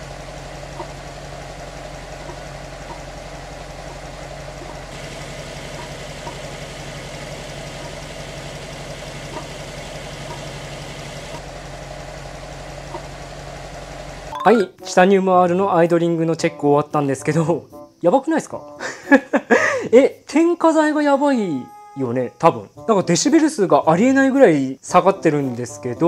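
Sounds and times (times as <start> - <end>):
car engine idling: 0.0 - 14.4.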